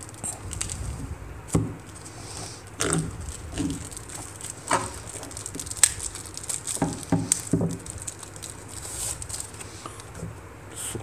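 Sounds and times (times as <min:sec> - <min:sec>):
paper wrapping crinkling: 0:00.0 - 0:10.2.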